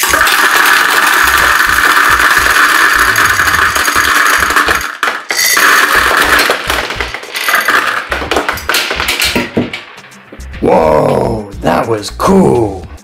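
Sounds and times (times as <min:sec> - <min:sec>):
gumballs clattering into plastic globe: 0:00.0 - 0:09.9.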